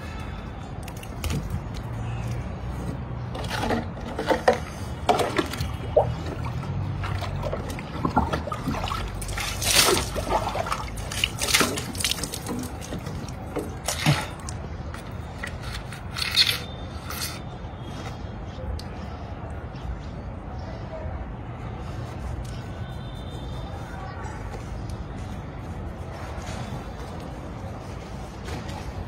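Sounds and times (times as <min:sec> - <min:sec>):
water splashing from bucket: 0:05.0 - 0:14.6.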